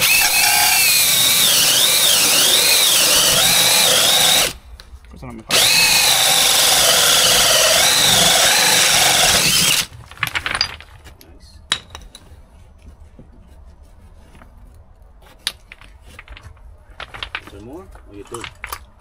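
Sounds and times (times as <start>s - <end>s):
cordless drill motor whine: 0.0s - 4.6s, 5.5s - 9.9s.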